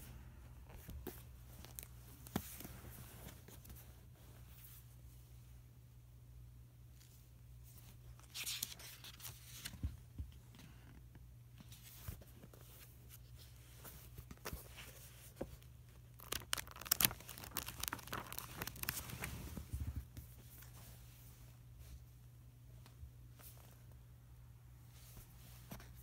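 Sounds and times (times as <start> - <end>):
paper pages flipping and rustling: 8.2 - 10.3, 13.8 - 20.8.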